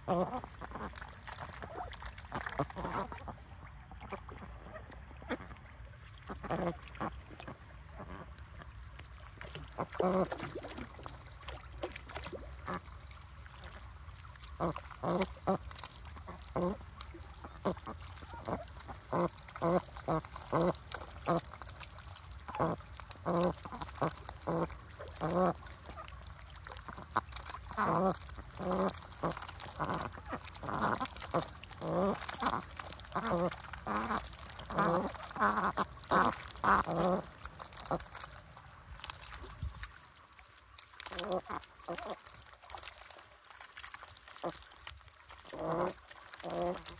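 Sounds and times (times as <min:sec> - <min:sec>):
ducks quacking: 0:00.0 - 0:03.4, 0:14.5 - 0:21.5, 0:22.5 - 0:38.2, 0:41.1 - 0:42.2, 0:45.5 - 0:46.9
bills dabbling in wet mud: 0:00.0 - 0:46.9
ducks splashing in water: 0:00.0 - 0:46.9.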